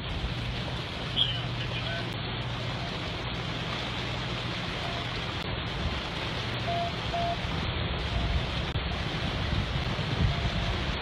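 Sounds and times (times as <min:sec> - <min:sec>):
low engine and road rumble: 0:00.0 - 0:11.0
rush of floodwater: 0:00.0 - 0:11.0
wind noise: 0:05.5 - 0:11.0.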